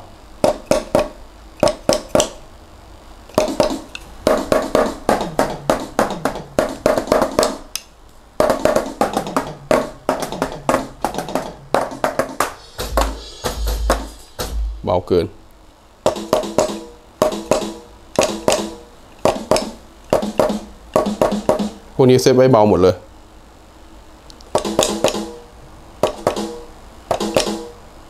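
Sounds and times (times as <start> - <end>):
electronic drum strikes: 0.4 - 2.4, 3.3 - 7.7, 8.4 - 15.0, 16.0 - 22.0, 24.5 - 27.8
kick drum thumps: 3.4 - 7.6, 8.4 - 14.9, 16.1 - 21.8.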